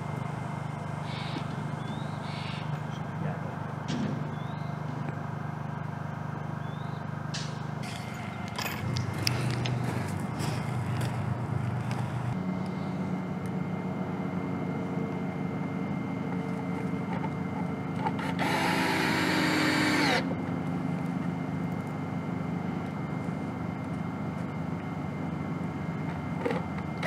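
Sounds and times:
steady low hum: 0.0 - 27.0
cordless drill running: 18.2 - 20.3.

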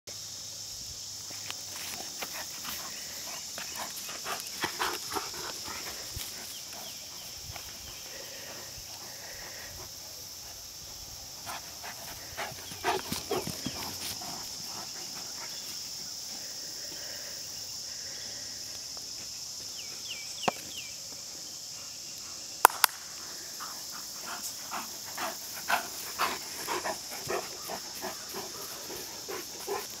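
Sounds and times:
dogs play noises: 11.4 - 15.8, 23.6 - 30.0
loud sharp snap: 22.6 - 23.0.

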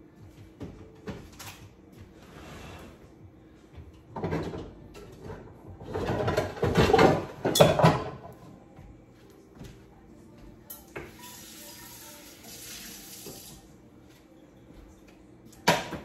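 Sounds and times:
cupboard door scraping: 2.2 - 3.0
things clattering and knocking: 3.8 - 8.4.

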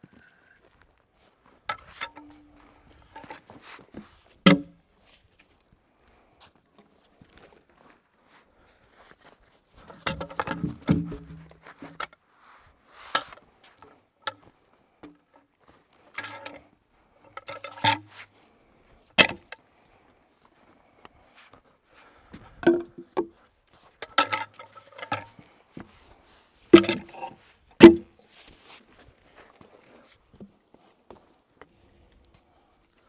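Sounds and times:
logs knocking together: 1.7 - 3.5, 4.4 - 4.8, 9.8 - 12.2, 16.1 - 16.6, 17.2 - 18.1, 19.2 - 19.6, 22.4 - 23.4, 24.0 - 25.5, 26.8 - 28.2
steel hook clanking on logs: 1.7 - 3.5, 4.4 - 4.8, 9.8 - 12.2, 13.1 - 15.4, 16.1 - 18.3, 19.2 - 19.6, 22.6 - 23.4, 24.0 - 25.4, 26.7 - 28.2.

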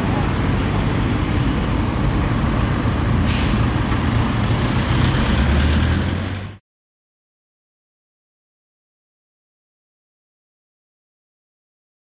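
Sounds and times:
van passing: 0.0 - 6.6
vehicle engines rumbling: 0.0 - 6.6
hiss of air: 3.2 - 3.8.

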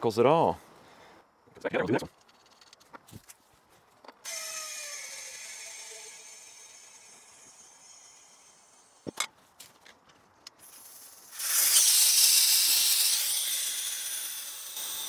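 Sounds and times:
compressed air hissing into tire: 10.6 - 13.2.

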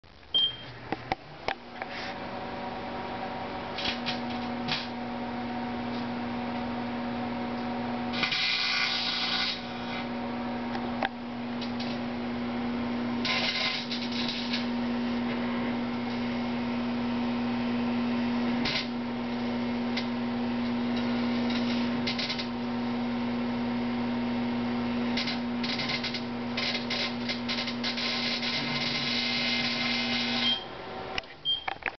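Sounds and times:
microwave oven humming: 0.2 - 31.9
short beep: 0.3 - 0.7
electrical arcing crackle: 3.7 - 5.0, 8.1 - 10.1, 11.6 - 12.1, 13.2 - 16.4, 18.5 - 22.7, 25.0 - 30.6.

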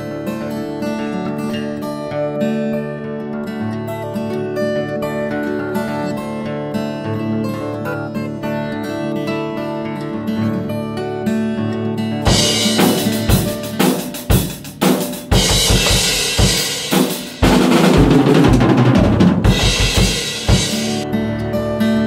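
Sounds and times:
acoustic guitar music: 0.0 - 22.0
drum kit played hard: 12.2 - 21.0
cymbal crashes: 12.3 - 13.9, 19.5 - 21.0.

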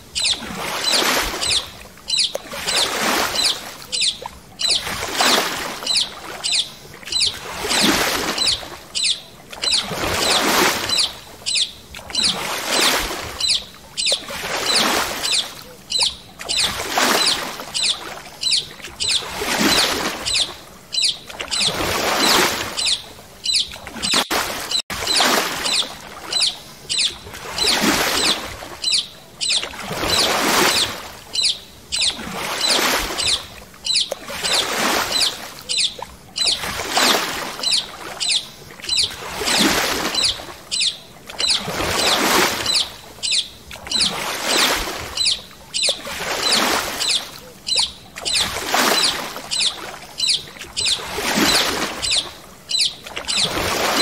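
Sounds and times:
paddle strokes swishing through water: 0.0 - 54.0.

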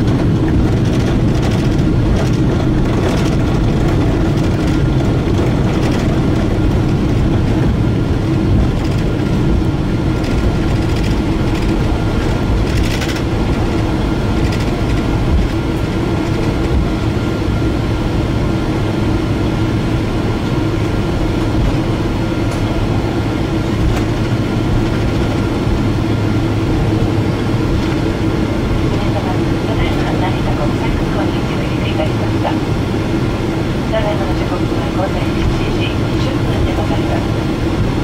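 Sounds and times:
steady low hum: 0.0 - 38.0
wheels and engines rumbling: 0.0 - 38.0.

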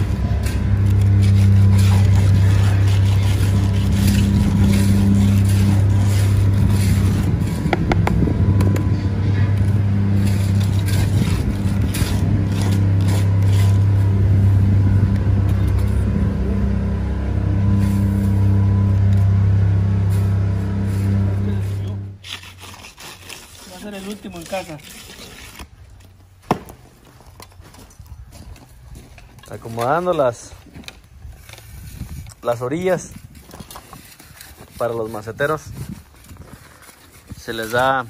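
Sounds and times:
motor humming: 0.0 - 22.2
trowel scraping wet concrete: 0.0 - 26.4, 28.8 - 38.0.

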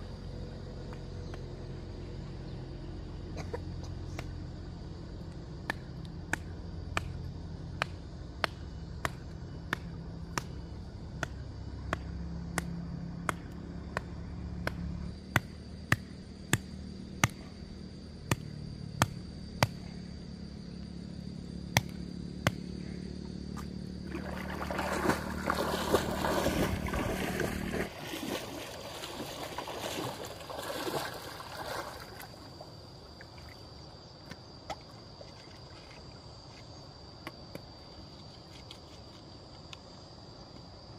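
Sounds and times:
low steady hum: 0.0 - 37.2
water splashing and sloshing: 23.6 - 36.3.

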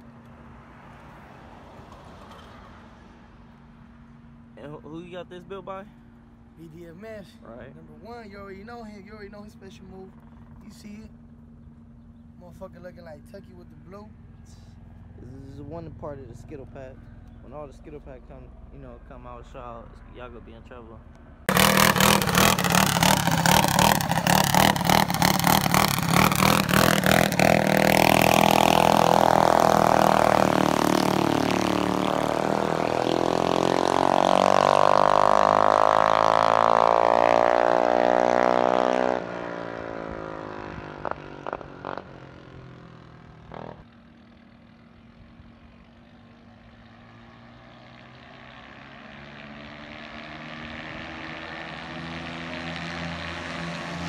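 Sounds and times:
small engine revving: 21.5 - 43.9.

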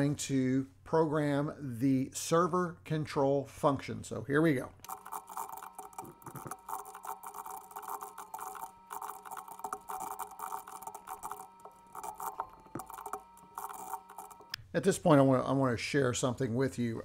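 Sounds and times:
computer keyboard typing: 4.9 - 14.6.

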